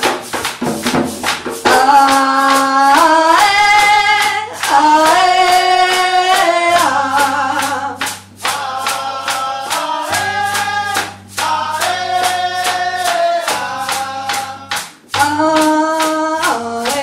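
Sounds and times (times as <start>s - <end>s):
hand drums and percussion: 0.0s - 17.0s
woman singing: 1.6s - 8.2s, 14.6s - 17.0s.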